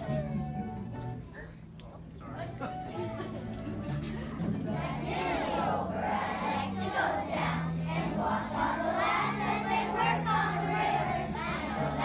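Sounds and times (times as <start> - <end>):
children singing in unison: 4.7 - 12.0.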